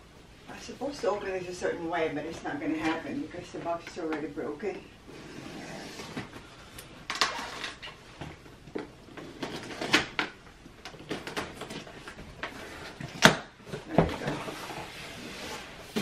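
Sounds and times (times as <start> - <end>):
cardboard rustling and creaking: 7.1 - 10.2, 10.9 - 16.0.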